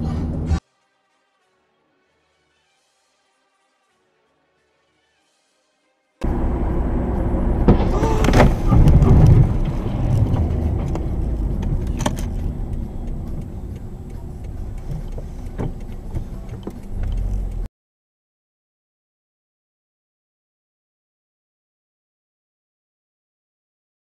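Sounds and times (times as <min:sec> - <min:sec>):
car road noise: 0:00.0 - 0:00.6, 0:06.2 - 0:17.7
sharp knocks: 0:07.6 - 0:11.8.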